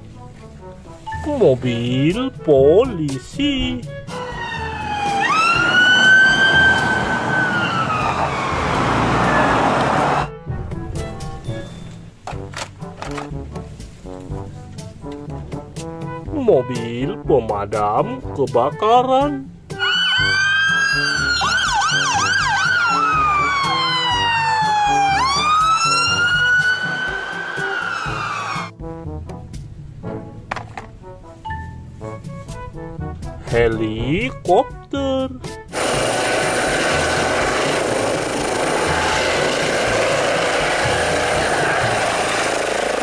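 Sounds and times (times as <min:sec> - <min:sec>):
fire engine siren wailing: 0:04.1 - 0:10.3, 0:19.8 - 0:28.7, 0:35.8 - 0:43.0
helicopter hovering: 0:04.1 - 0:10.3, 0:20.5 - 0:28.7, 0:35.7 - 0:43.0
yelping siren: 0:04.1 - 0:10.3, 0:19.8 - 0:28.7.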